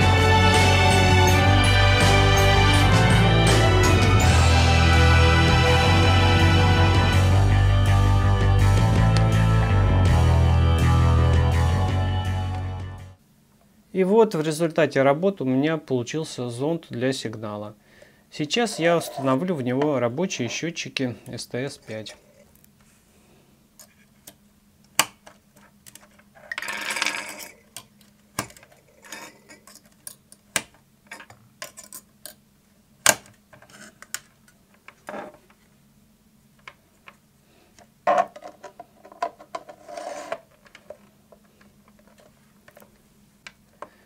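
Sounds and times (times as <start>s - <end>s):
rattling and rubbing handling noise: 18.5s - 20.8s, 25.2s - 30.0s, 38.0s - 43.8s.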